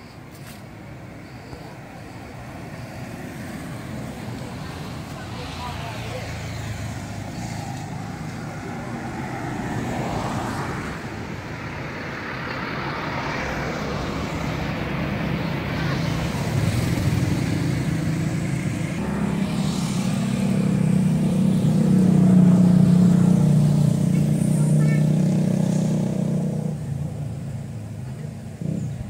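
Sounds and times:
vehicle engine running: 13.7 - 29.0.

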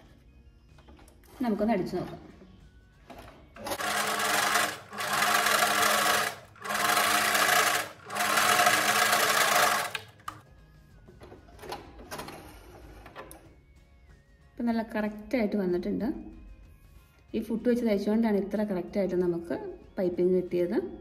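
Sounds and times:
electric sewing machine stitching: 3.6 - 10.3.

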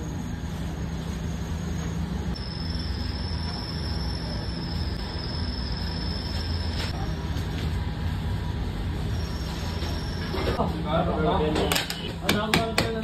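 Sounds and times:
thin high whine: 0.0 - 7.7, 9.0 - 10.6
low mechanical rumble: 0.0 - 12.1.

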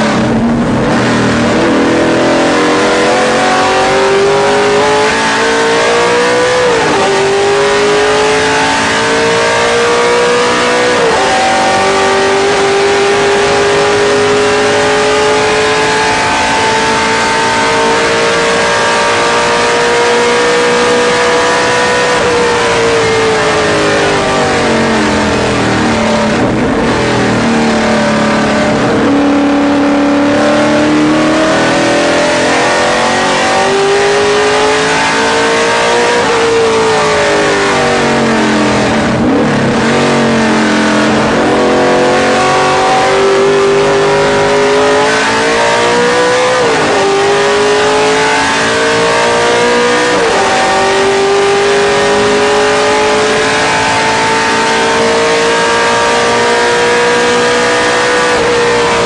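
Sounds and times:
race car engine revving: 0.0 - 59.0
wind and road noise: 0.0 - 59.0.

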